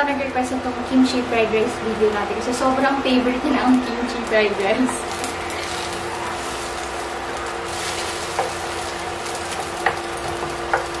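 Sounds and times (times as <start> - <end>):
egg sizzling in oil: 4.9 - 11.0
spatula scraping pan: 5.1 - 10.9.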